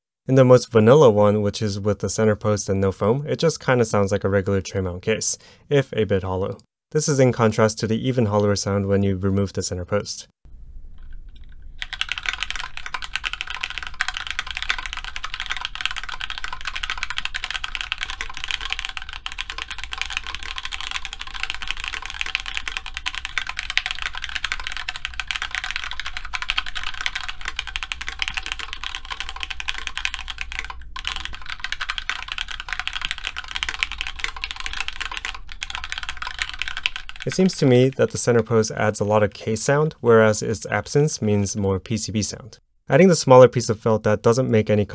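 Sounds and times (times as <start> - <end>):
fast mechanical keyboard typing: 11.8 - 39.7.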